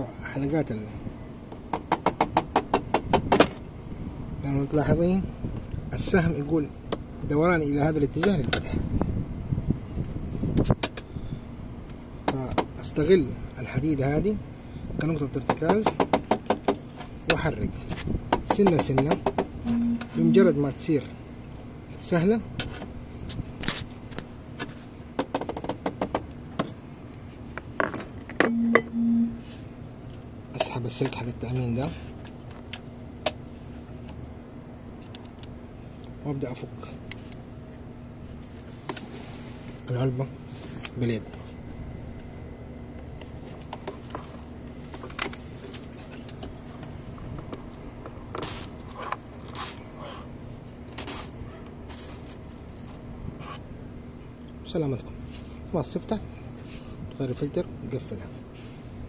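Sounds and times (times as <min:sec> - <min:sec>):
low hum: 0:19.6 - 0:20.7, 0:28.5 - 0:29.7.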